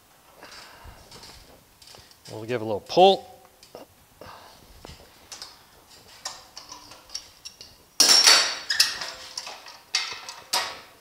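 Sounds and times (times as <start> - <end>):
metal clanks: 5.3 - 11.0.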